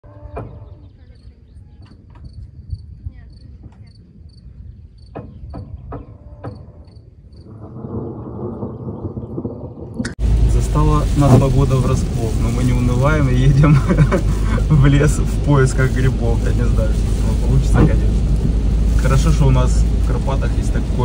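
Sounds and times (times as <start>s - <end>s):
insect chirping: 2.2s - 9.8s
low rumble: 7.2s - 21.0s
rushing noise: 7.4s - 21.0s.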